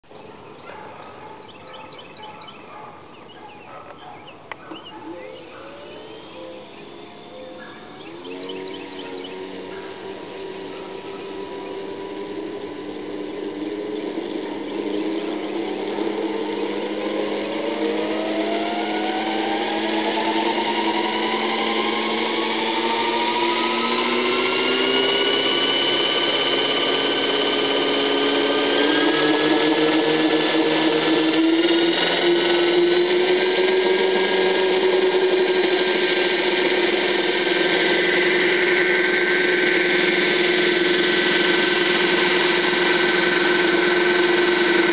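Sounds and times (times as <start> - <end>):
model helicopter rotor whine: 0.0 - 44.9.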